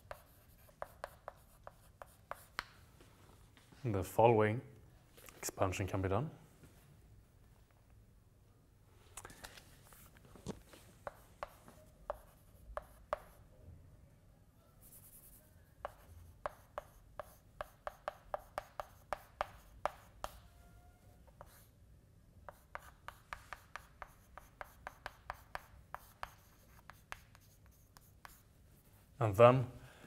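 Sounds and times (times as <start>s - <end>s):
chalk tapping and scratching: 0.0s - 2.8s, 10.7s - 13.4s, 14.8s - 20.4s, 22.5s - 29.1s.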